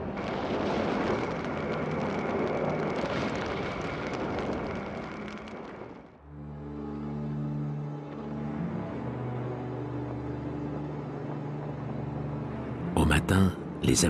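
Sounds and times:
roar of fire and blasts: 0.0s - 6.2s
crackling: 0.0s - 6.3s.

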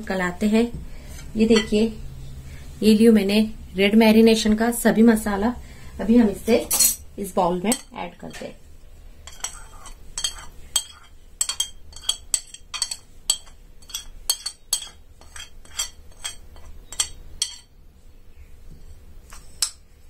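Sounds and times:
metal spoon clinking on glass: 9.3s - 17.7s.

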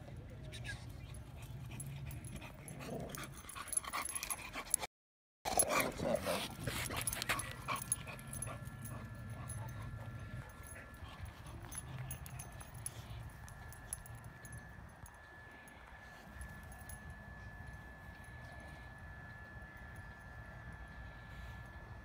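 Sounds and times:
dogs vocalizing: 5.5s - 14.1s.

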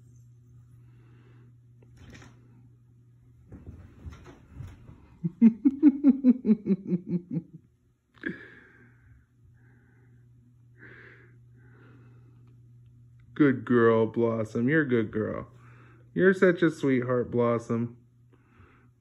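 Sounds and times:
person laughing: 5.2s - 7.6s, 8.2s - 8.7s.

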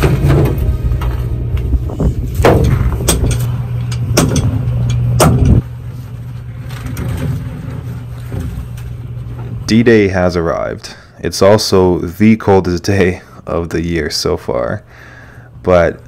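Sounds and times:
rope thudding on steel deck: 0.0s - 5.6s
ship engine droning: 0.0s - 12.3s.

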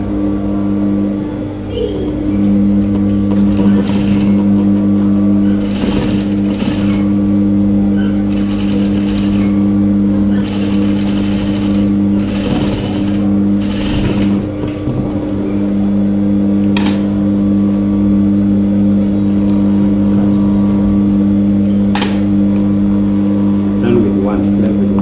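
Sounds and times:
sewing machine motor humming: 0.0s - 17.4s
sewing machine needle stitching: 5.6s - 7.1s, 10.4s - 14.4s.

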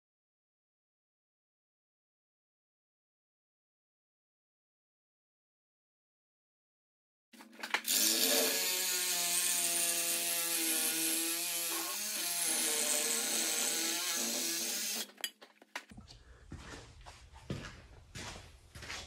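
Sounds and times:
angle grinder cutting steel: 7.6s - 15.4s.

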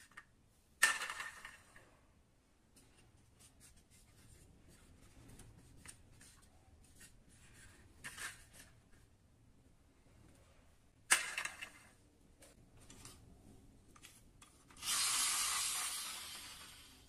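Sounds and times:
toy handling clicks and rubbing: 13.9s - 17.0s.

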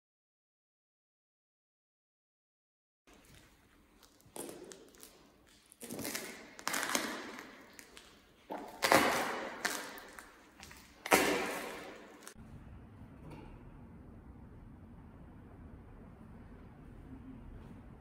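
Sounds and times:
crunching footsteps: 3.1s - 12.4s.

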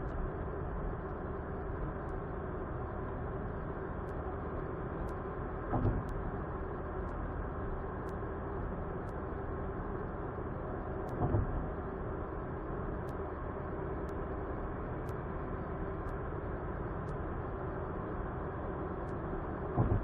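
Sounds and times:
car driving road and engine noise: 0.0s - 20.0s.

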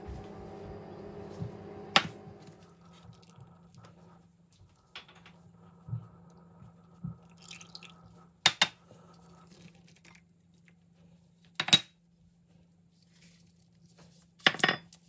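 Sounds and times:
faint low hum: 0.0s - 11.4s.

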